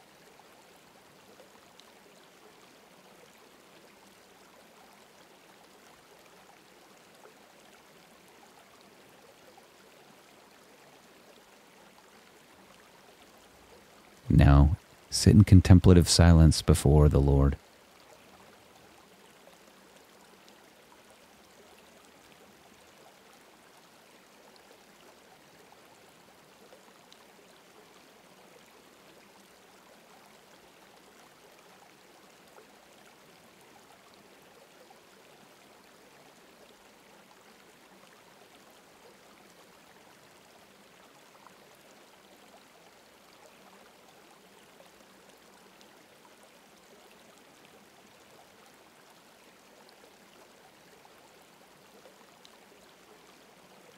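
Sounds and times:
flowing stream: 0:00.0 - 0:53.9.

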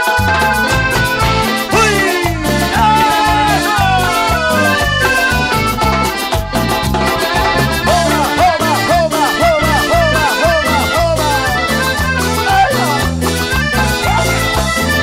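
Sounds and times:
live band dance music: 0:00.0 - 0:15.0
sliding lead melody notes: 0:00.0 - 0:15.0.

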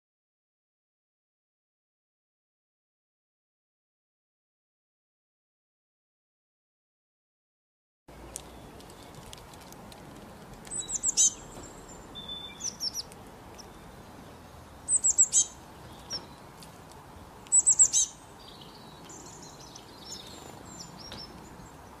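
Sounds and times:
songbird singing: 0:08.1 - 0:22.0
soft bird twitters: 0:10.7 - 0:16.6, 0:17.4 - 0:22.0.

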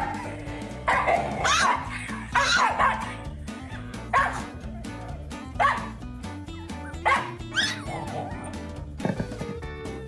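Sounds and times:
background music: 0:00.0 - 0:10.0
puppy yapping: 0:00.9 - 0:03.2, 0:04.1 - 0:04.9, 0:05.6 - 0:06.0, 0:06.9 - 0:08.5.

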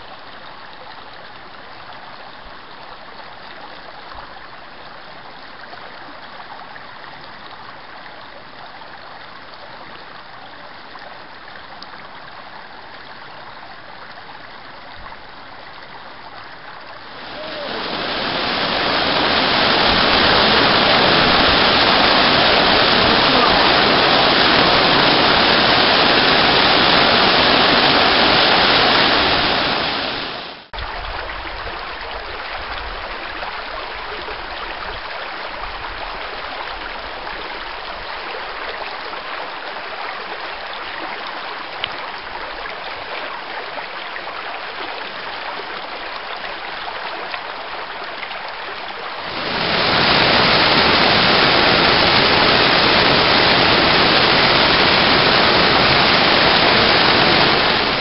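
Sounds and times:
creek running over rocks: 0:00.0 - 0:58.0
waterfall rushing: 0:17.0 - 0:30.8, 0:49.1 - 0:58.0.

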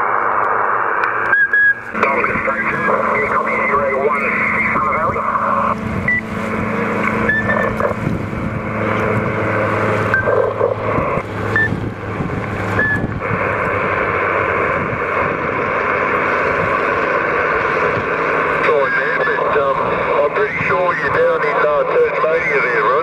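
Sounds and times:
faint garbled radio signals: 0:00.0 - 0:11.9, 0:12.7 - 0:23.0
radio static hiss: 0:00.0 - 0:23.0
short beep tones: 0:01.3 - 0:01.8, 0:06.0 - 0:06.3, 0:07.2 - 0:07.8, 0:10.1 - 0:10.4, 0:11.5 - 0:11.8, 0:12.8 - 0:13.1.

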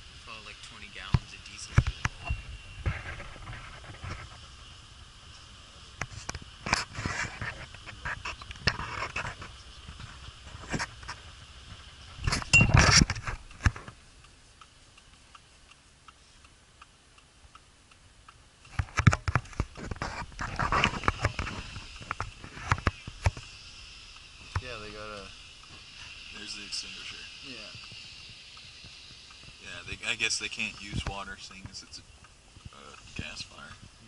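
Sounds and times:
clicks and rustles of movement: 0:01.0 - 0:04.5, 0:05.3 - 0:14.0, 0:18.6 - 0:23.5.

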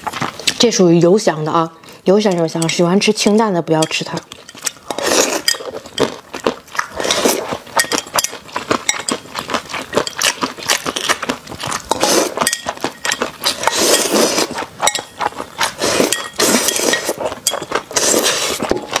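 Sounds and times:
chewing: 0:00.0 - 0:00.6, 0:04.2 - 0:19.0
chopsticks clicking against bowl: 0:02.2 - 0:02.9
noodles slurped: 0:04.8 - 0:05.9, 0:10.2 - 0:12.6, 0:13.4 - 0:14.7, 0:15.6 - 0:19.0.

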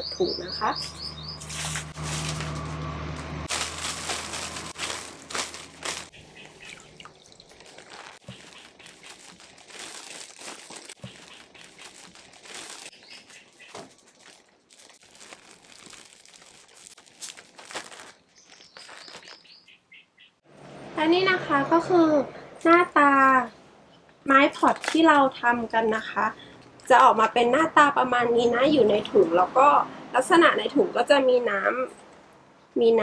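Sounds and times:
plastic bag crinkling: 0:01.4 - 0:02.8, 0:03.5 - 0:19.6, 0:24.5 - 0:25.2.

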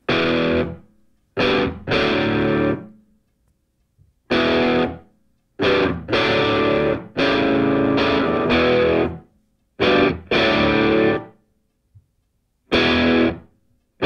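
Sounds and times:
distorted electric guitar chords: 0:00.0 - 0:00.8, 0:01.4 - 0:02.9, 0:04.3 - 0:05.0, 0:05.6 - 0:09.2, 0:09.8 - 0:11.3, 0:12.7 - 0:13.5.

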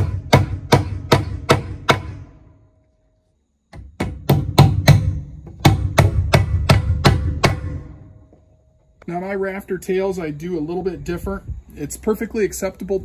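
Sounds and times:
hammer driving nails: 0:00.0 - 0:02.3, 0:03.7 - 0:08.0.

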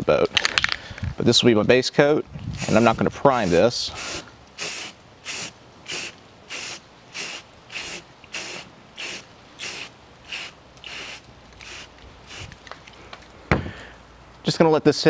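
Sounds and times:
spray paint can hissing: 0:02.6 - 0:12.5.

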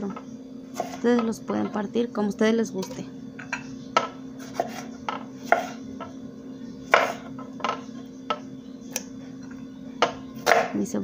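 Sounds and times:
knife cutting on wooden board: 0:04.4 - 0:05.8, 0:06.9 - 0:07.2.

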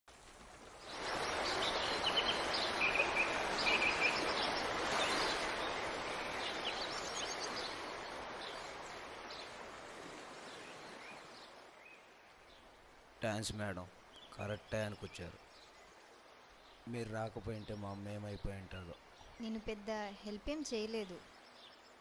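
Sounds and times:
water rushing over rocks: 0:00.1 - 0:11.7
birds chirping: 0:00.7 - 0:22.0.

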